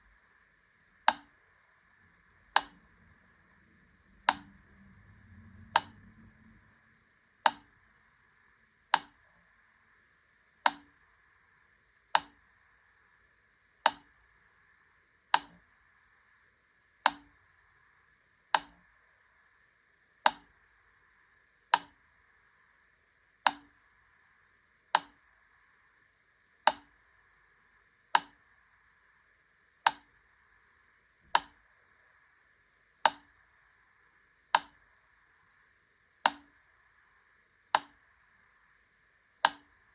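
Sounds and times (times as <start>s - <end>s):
mechanical metronome ticking: 2.5s - 2.9s, 4.1s - 4.8s, 5.6s - 6.1s, 7.4s - 7.8s, 8.9s - 9.2s, 10.6s - 11.0s, 12.1s - 12.4s, 13.8s - 14.2s, 15.3s - 15.6s, 17.0s - 17.4s, 18.5s - 18.8s, 23.4s - 23.8s, 26.6s - 27.0s, 28.1s - 28.4s, 31.4s - 31.6s, 34.5s - 34.8s, 36.2s - 36.5s, 37.7s - 38.0s, 39.4s - 39.7s.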